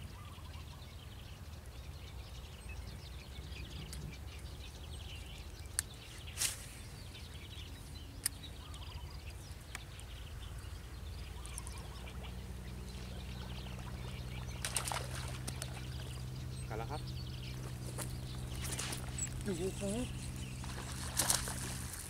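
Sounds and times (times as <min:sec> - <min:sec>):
faint birds chirping: 0:00.0 - 0:22.0
low steady hum: 0:00.0 - 0:22.0.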